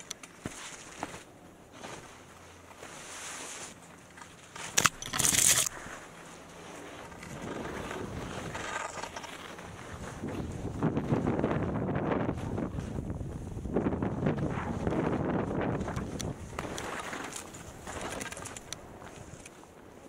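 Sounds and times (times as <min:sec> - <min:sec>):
skis swishing through powder snow: 0:00.4 - 0:03.8
wind noise on microphone: 0:07.1 - 0:19.5.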